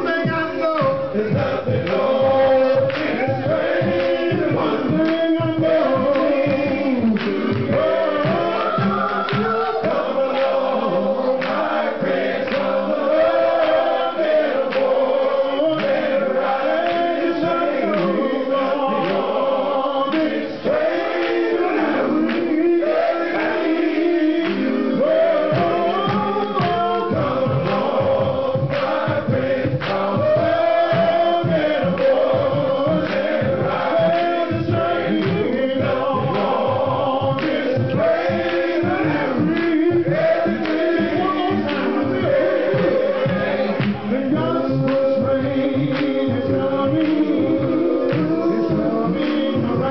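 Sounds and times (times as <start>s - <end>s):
man singing into a microphone: 0.0s - 11.4s, 21.4s - 49.9s
men's choir singing: 0.0s - 49.9s.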